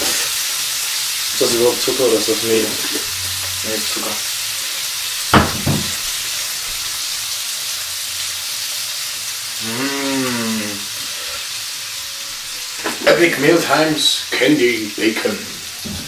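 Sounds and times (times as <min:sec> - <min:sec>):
bacon sizzling in a frying pan: 0:00.0 - 0:16.0
person humming: 0:09.6 - 0:11.4.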